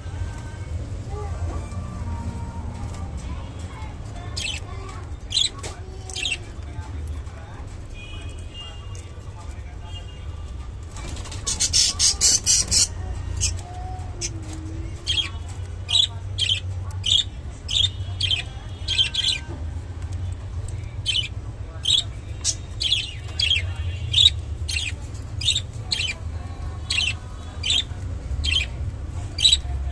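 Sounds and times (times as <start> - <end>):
budgerigars chirping: 11.4 - 13.6, 15.1 - 19.5, 21.0 - 26.2, 26.8 - 29.8.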